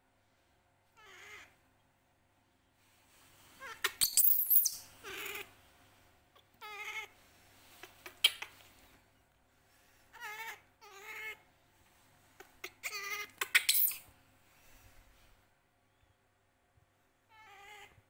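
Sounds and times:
baby monkey squealing: 3.6s - 5.5s, 12.6s - 14.0s.

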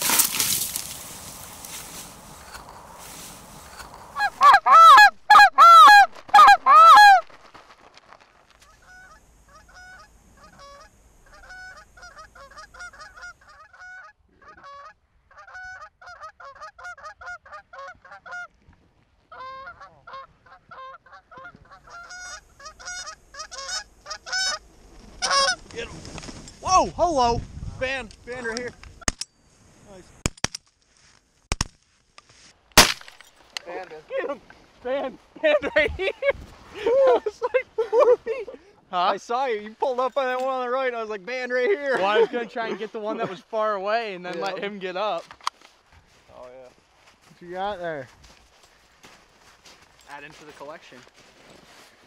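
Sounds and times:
geese honking: 1.4s - 7.4s, 8.6s - 18.5s, 19.3s - 25.8s.

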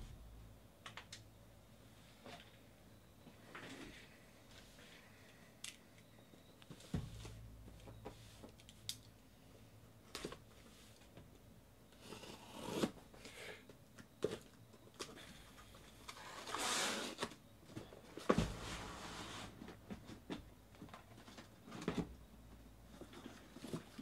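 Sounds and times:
cardboard and tape rustling: 22.9s - 24.0s.

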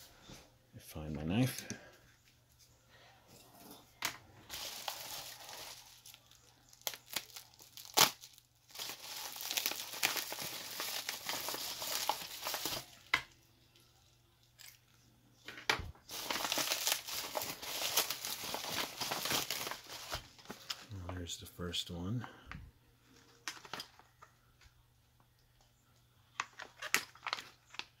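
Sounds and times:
plastic packaging tearing and crinkling: 4.4s - 13.2s, 16.1s - 20.9s.

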